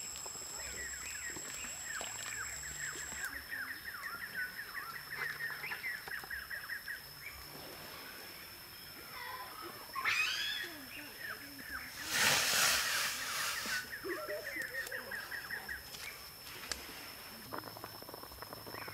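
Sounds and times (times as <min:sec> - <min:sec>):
steady high-pitched whine: 0:00.0 - 0:10.0.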